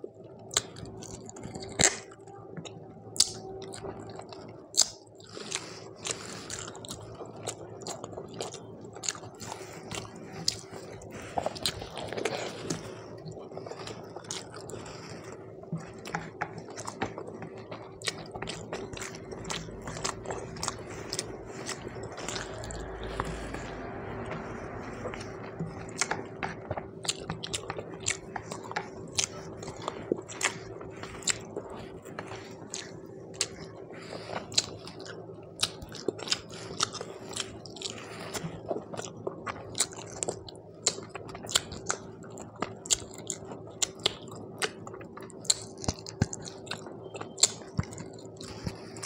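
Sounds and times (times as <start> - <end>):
close chewing with wet mouth clicks: 0.0 - 49.0
steady low hum: 0.0 - 49.0.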